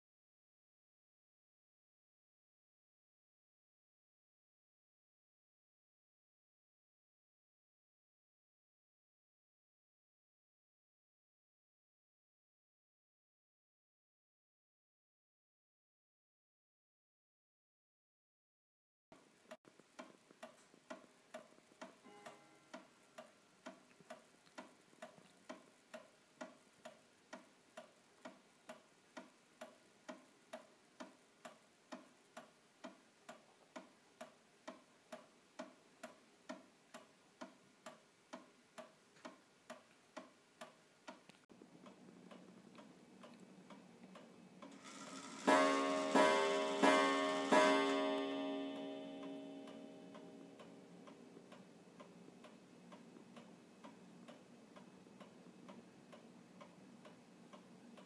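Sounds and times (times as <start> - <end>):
clock ticking: 19.2 - 58.0
clock striking: 44.7 - 51.2.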